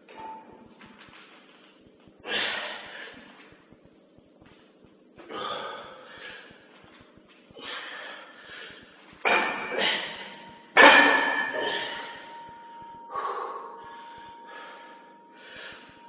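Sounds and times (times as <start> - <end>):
man breathing hard: 2.2 - 3.4, 5.2 - 6.8, 7.5 - 10.4, 11.5 - 16.0.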